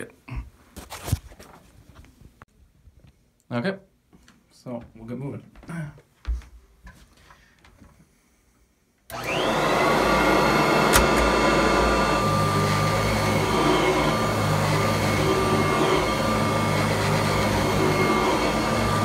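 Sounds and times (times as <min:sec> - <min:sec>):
vacuum cleaner motor whine: 0:09.1 - 0:19.0
sharp click: 0:10.9 - 0:11.3.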